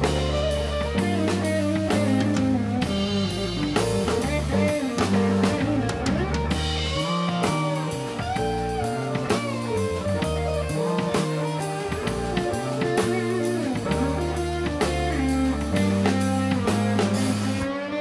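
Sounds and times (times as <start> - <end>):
live band playing: 0.0 - 18.0.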